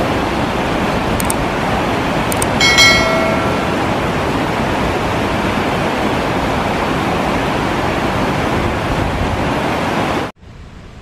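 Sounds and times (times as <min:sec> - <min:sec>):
waterfall rushing: 0:00.0 - 0:08.8
river rapids rushing: 0:00.0 - 0:10.3.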